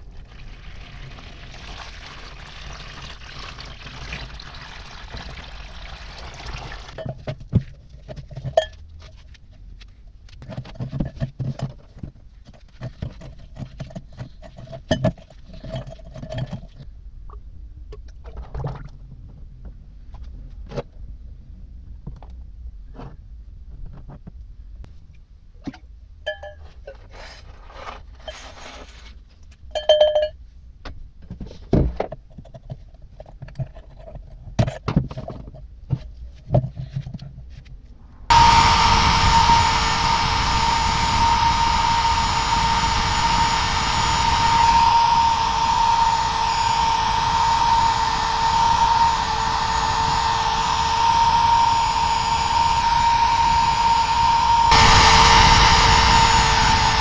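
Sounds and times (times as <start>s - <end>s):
electric drill with wire brush: 38.3s - 57.0s.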